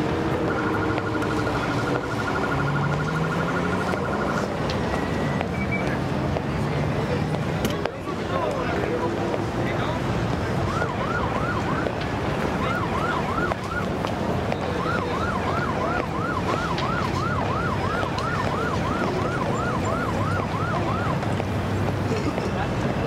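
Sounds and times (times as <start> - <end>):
siren yelping: 0.0 - 6.1, 10.5 - 21.4
city traffic noise: 0.0 - 23.0.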